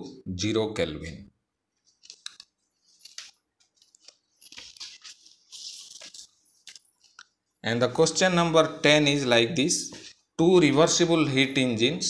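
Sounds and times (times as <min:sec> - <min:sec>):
paper rustling: 0:01.8 - 0:07.3.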